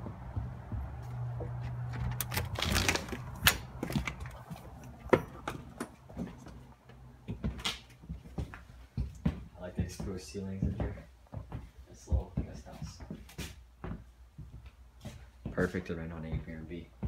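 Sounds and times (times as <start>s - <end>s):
footsteps on hard floor: 0.0s - 2.3s, 3.2s - 15.7s
door opening: 1.8s - 6.0s
rustling: 2.0s - 5.0s.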